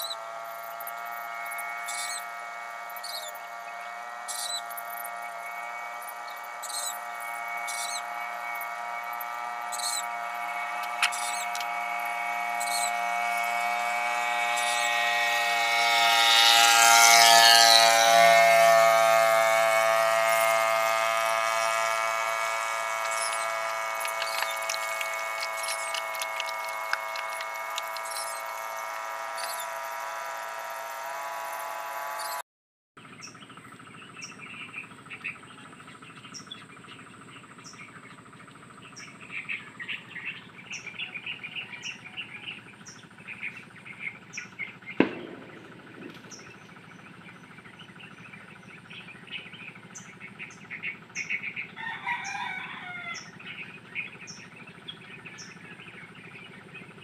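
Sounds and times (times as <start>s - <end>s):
chirping: 0.0s - 32.4s
rooster crowing: 51.8s - 53.3s.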